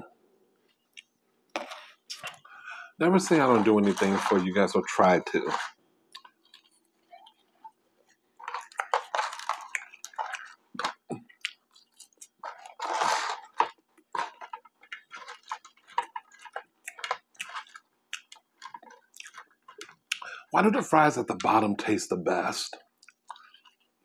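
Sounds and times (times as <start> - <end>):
chewing with wet mouth clicks: 0.7 - 2.4, 6.1 - 12.8, 13.5 - 20.4, 22.8 - 23.9.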